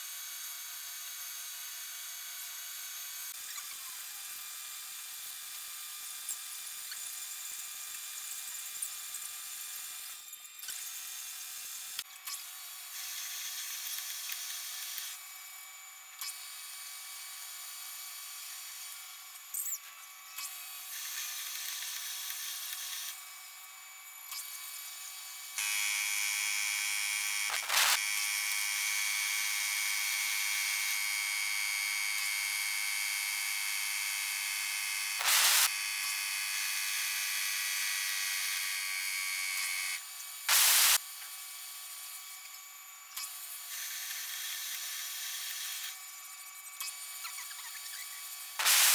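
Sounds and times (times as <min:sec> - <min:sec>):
lathe cutting hiss and whine: 0:27.4 - 0:28.0, 0:35.1 - 0:35.7, 0:40.5 - 0:41.0, 0:48.6 - 0:48.9.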